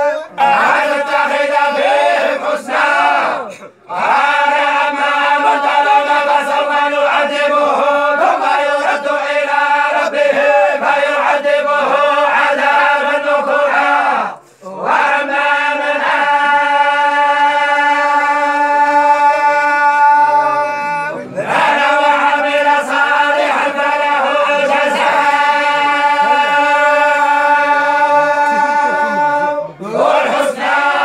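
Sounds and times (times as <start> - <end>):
group chanting in unison: 0.0 - 31.0.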